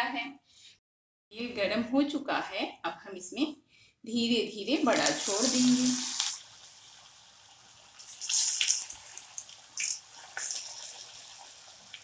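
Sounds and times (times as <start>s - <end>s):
hot oil sizzling: 4.8s - 12.0s
sharp crackles in oil: 4.9s - 6.4s, 7.9s - 12.0s.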